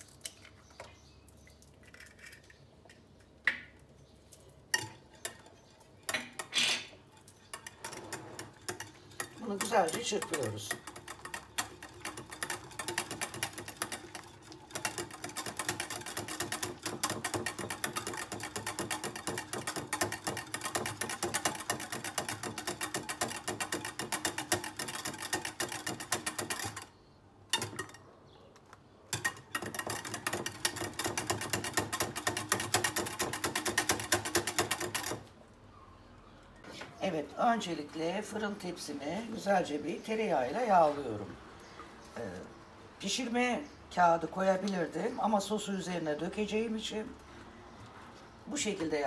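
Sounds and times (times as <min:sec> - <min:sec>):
whisk clicking against glass bowl: 0:07.2 - 0:26.9, 0:29.1 - 0:35.3.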